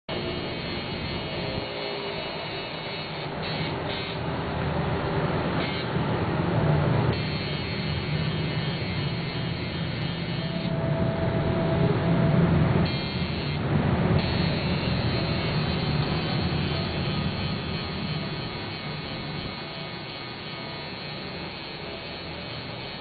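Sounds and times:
tattoo machine buzzing: 0.1s - 4.3s, 5.6s - 6.0s, 7.1s - 10.8s, 12.8s - 13.6s, 14.2s - 23.0s.

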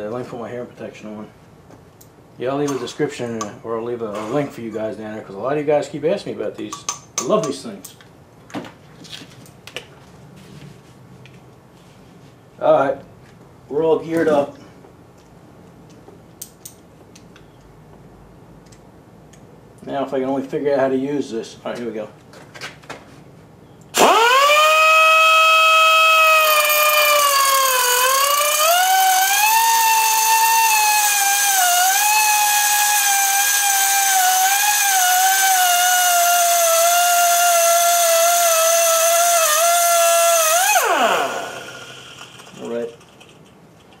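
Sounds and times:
die grinder cutting steel: 24.0s - 42.6s.

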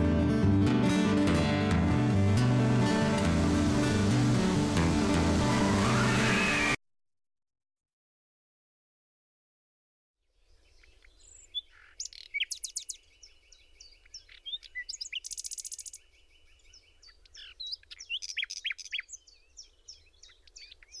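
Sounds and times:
birds chirping and singing: 10.4s - 21.0s.

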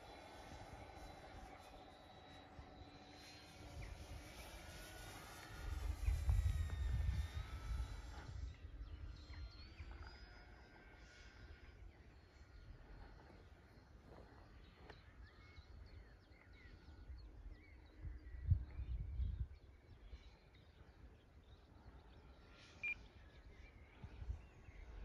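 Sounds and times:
faint bird chirps: 0.0s - 25.0s
wind buffeting microphone: 3.6s - 10.0s, 17.9s - 19.7s.

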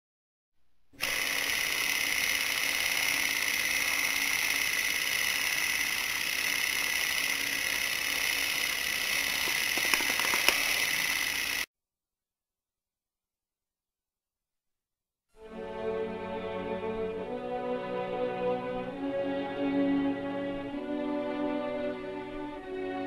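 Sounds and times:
film projector whirring: 1.0s - 11.7s
sharp projector clicks: 1.0s - 11.7s.

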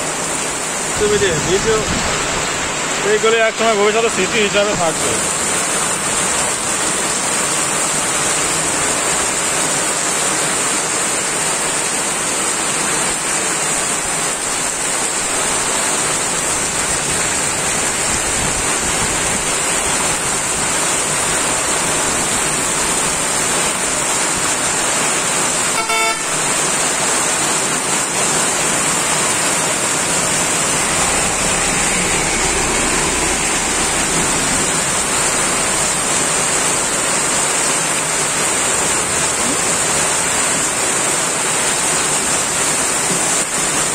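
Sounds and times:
heavy rain on road: 0.0s - 43.9s
vehicle horn: 25.6s - 26.5s.

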